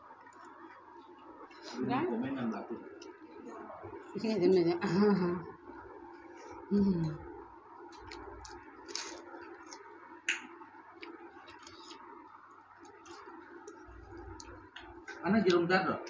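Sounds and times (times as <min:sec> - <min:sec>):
faint steady hum: 0:00.0 - 0:16.0
chewing: 0:07.9 - 0:15.6
fingers mixing food on plates: 0:07.9 - 0:16.0.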